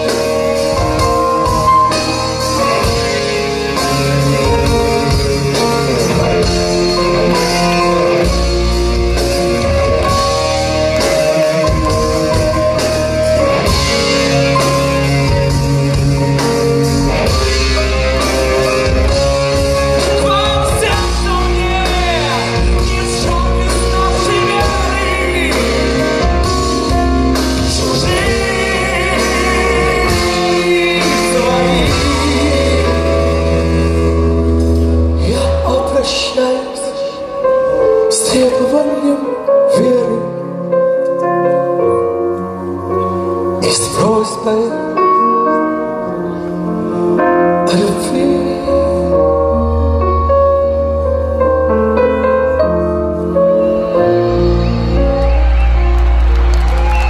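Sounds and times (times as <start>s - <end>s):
man singing: 0.0s - 16.0s, 18.2s - 34.3s, 35.2s - 41.9s, 43.5s - 45.6s, 47.5s - 49.9s
live rock band: 0.0s - 57.0s.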